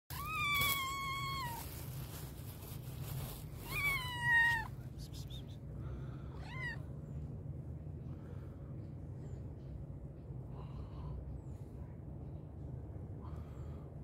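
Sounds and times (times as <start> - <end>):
cat meowing: 0.1 - 1.7, 3.6 - 4.8, 6.3 - 6.8.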